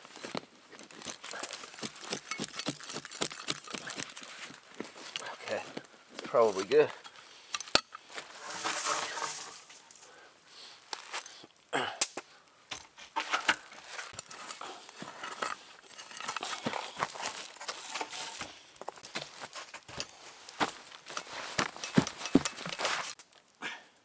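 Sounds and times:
knocks and crunches of packing soil: 0.0 - 10.2, 10.9 - 23.6
sandy soil being scraped: 8.2 - 10.0, 13.0 - 19.7.

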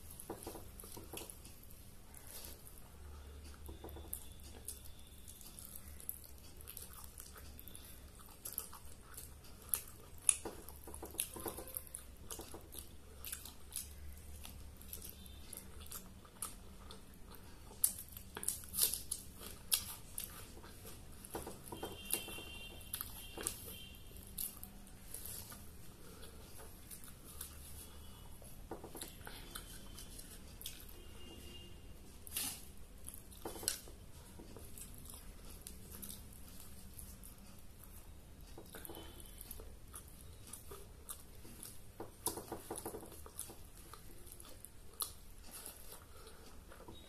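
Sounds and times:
person biting and chewing: 4.1 - 21.1, 32.2 - 37.5.

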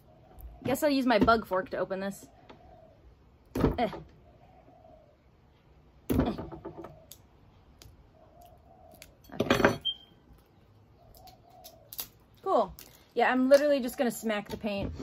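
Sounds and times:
dove cooing faintly: 2.2 - 9.3.

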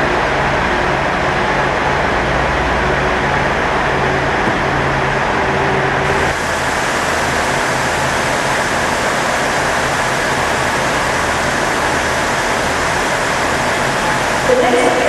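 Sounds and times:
train diesel engines running: 0.0 - 15.0
loud even hiss: 6.1 - 15.0.

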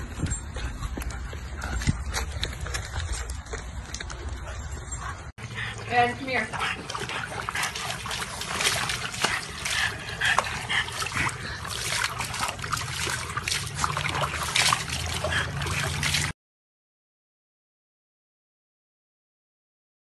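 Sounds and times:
water splashing in plastic tub: 5.9 - 16.3.

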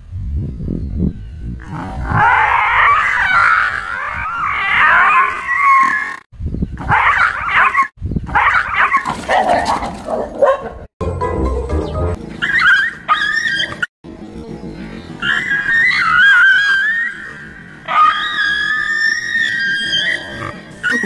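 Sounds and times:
dog whining and yelping: 12.4 - 13.9, 15.2 - 21.0.

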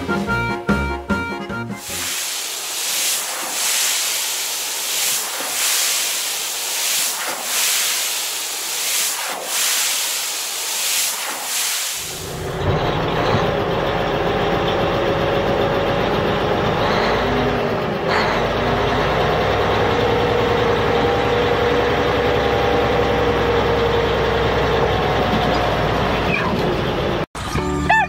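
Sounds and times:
truck engine rumbling: 12.1 - 28.0.

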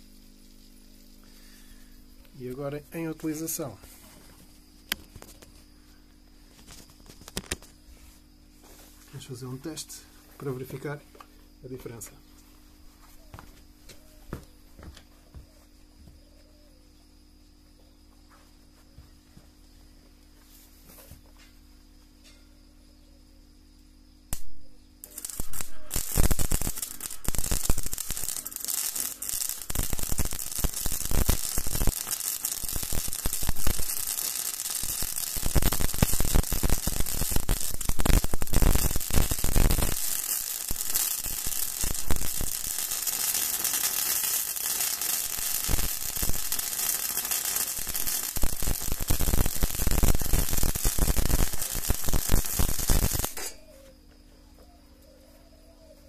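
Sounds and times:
welding arc crackling: 6.5 - 7.7, 24.3 - 53.6.

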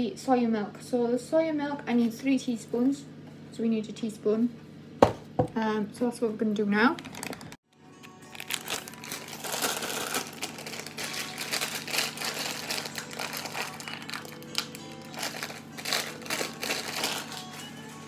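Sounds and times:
paper sachet crinkling and tearing: 6.9 - 7.6, 8.2 - 17.8
background music: 7.7 - 18.0.

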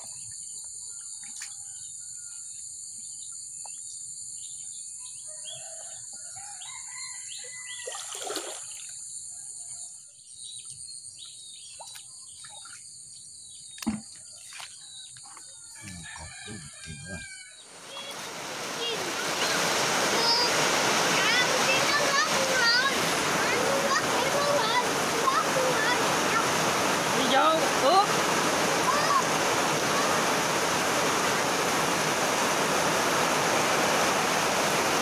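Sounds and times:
rooster crowing: 5.3 - 7.8, 15.6 - 17.7
sharp knock: 13.8 - 14.1.

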